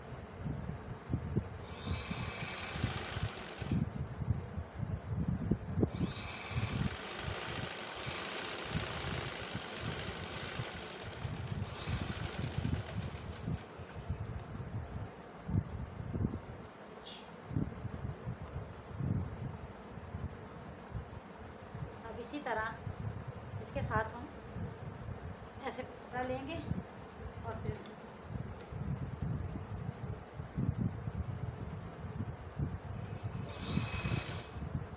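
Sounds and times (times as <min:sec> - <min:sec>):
sewing machine rattling: 0:01.6 - 0:03.9, 0:05.9 - 0:14.1, 0:33.4 - 0:34.6.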